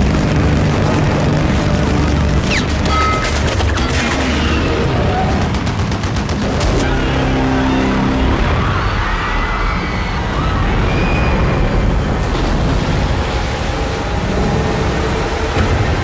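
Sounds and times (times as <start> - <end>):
rapid gunfire: 0.0 - 7.5
continuous low rumble: 0.0 - 16.0.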